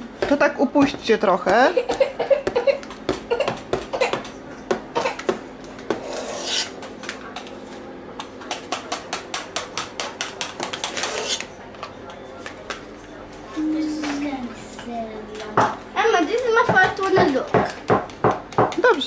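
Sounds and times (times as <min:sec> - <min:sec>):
spoons scraping metal bowl: 0:06.0 - 0:06.8, 0:11.0 - 0:11.5.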